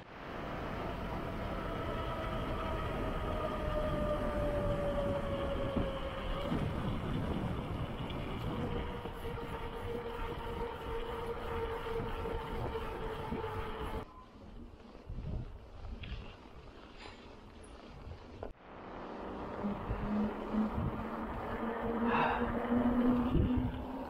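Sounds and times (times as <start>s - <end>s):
wind rush: 0.0s - 14.1s, 18.0s - 24.0s
bicycle tyre roar on asphalt: 0.0s - 24.0s
thin steady whine: 7.9s - 14.5s, 18.6s - 24.0s.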